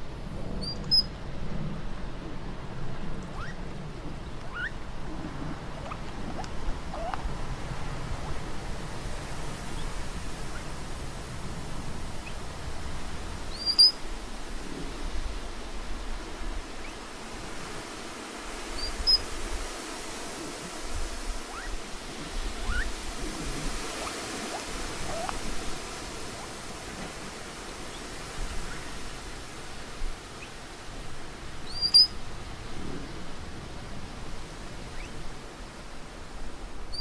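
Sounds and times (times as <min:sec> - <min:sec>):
steady outdoor hiss: 0:00.0 - 0:37.0
faint upward sliding calls: 0:06.9 - 0:07.2, 0:13.6 - 0:14.0, 0:21.4 - 0:21.8, 0:22.6 - 0:22.9, 0:23.8 - 0:25.4, 0:31.7 - 0:32.1.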